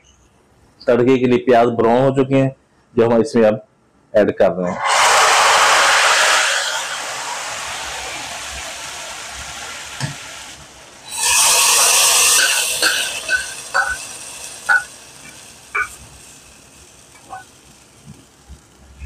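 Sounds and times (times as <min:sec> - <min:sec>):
hot oil sizzling: 0:04.8 - 0:19.0.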